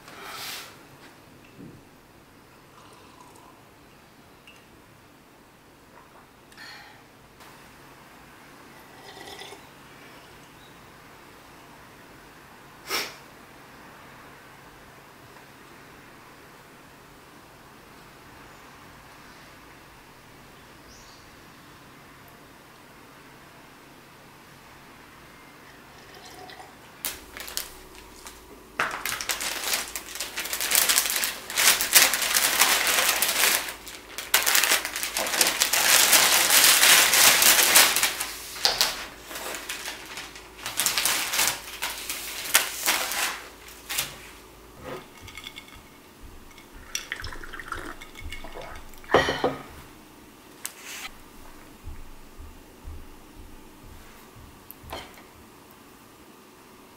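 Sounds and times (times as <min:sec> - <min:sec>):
paper bag and plastic container rustling: 0:27.1 - 0:47.0
steady low hum: 0:38.0 - 0:56.9
dishes clicking and knocking: 0:44.8 - 0:49.8.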